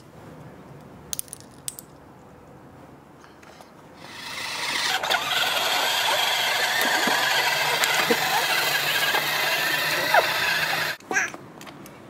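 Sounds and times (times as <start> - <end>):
toy car motor whining: 4.0 - 11.0.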